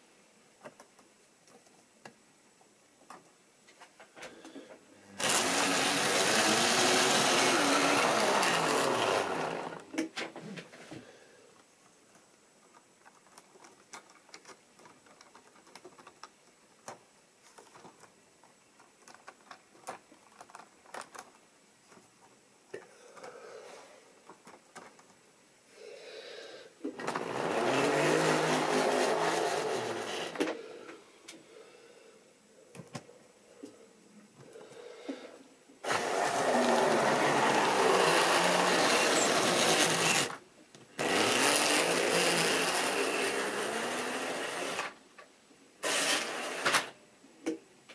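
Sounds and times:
model train motor whine: 5.2s - 9.9s, 27.0s - 30.6s, 35.8s - 40.4s, 41.0s - 45.0s, 45.8s - 46.9s.

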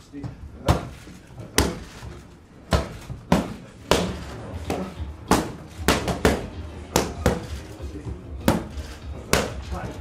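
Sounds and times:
boxing gloves smacking mitts: 0.6s - 10.0s.

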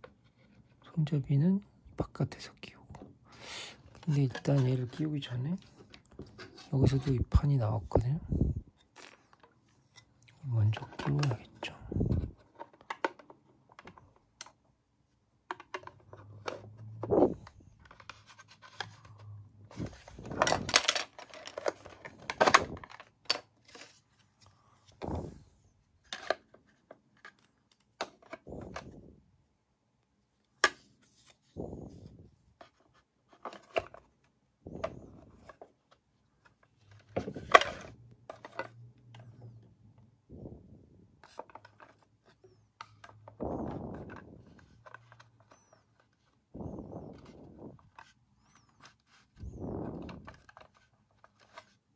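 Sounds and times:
plastic parts clicking and knocking: 8.8s - 14.8s, 15.4s - 24.1s, 26.0s - 29.1s, 32.0s - 39.7s, 41.2s - 51.9s
plastic rubbing on plastic: 41.2s - 51.9s.

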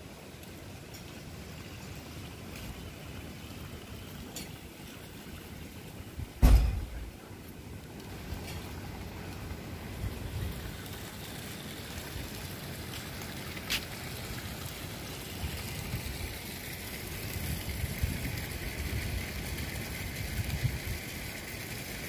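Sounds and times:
fountain water splashing: 0.0s - 22.0s
wind rumble on microphone: 17.2s - 21.3s.

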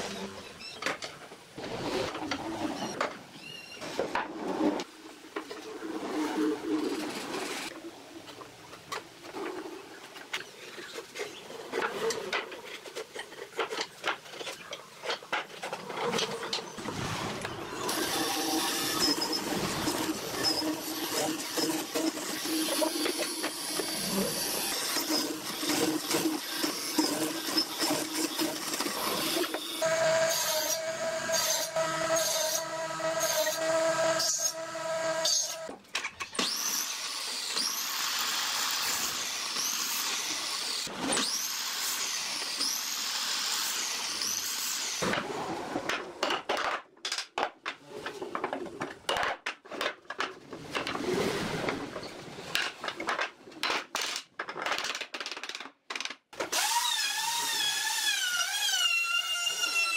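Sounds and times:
wood cutting strokes: 16.1s - 35.8s, 36.4s - 45.0s.

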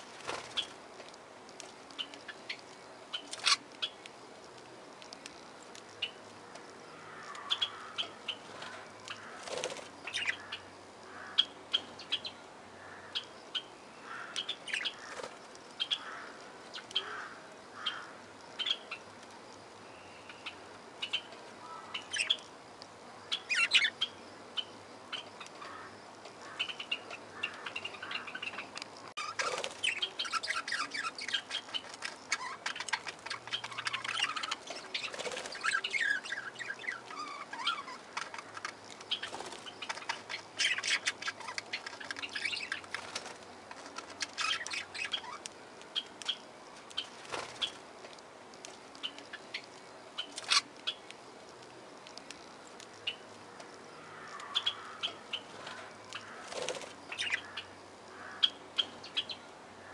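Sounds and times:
budgerigars chirping: 54.6s - 55.5s, 57.1s - 59.4s.

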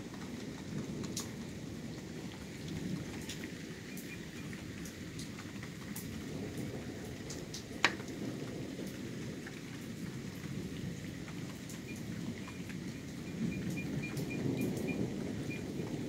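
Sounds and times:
steady rain: 0.0s - 16.0s
thunder rumbling: 5.8s - 16.0s
dripping water: 8.8s - 15.9s.

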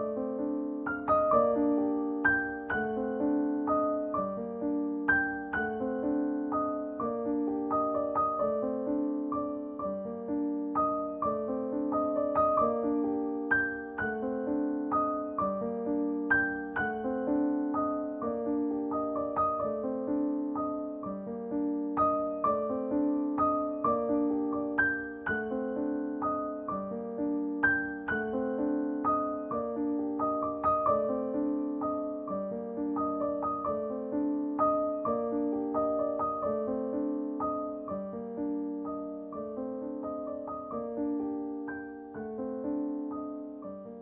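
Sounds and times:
piano music: 0.0s - 44.0s.

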